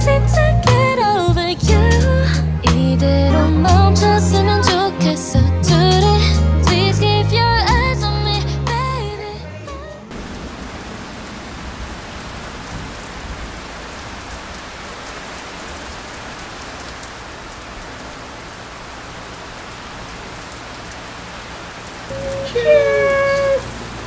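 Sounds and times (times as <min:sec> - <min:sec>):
music: 0:00.0 - 0:10.1
heavy rain falling: 0:10.1 - 0:24.0.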